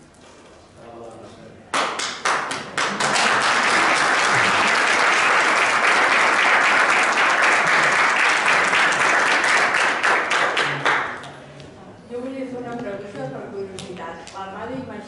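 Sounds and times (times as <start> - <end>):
audience applauding: 1.8 - 11.3.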